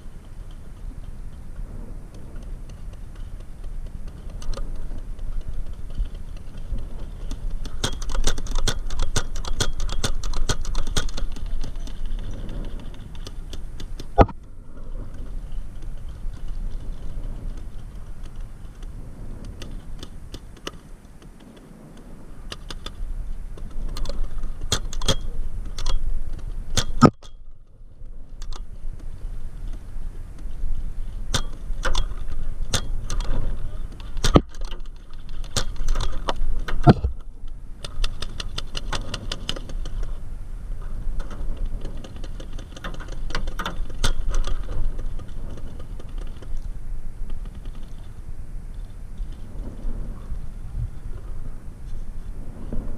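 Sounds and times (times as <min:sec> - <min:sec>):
paintball gun clicks: 0:00.4 - 0:23.0, 0:23.6 - 0:27.4, 0:31.3 - 0:40.2
sharp crack: 0:31.3 - 0:40.1.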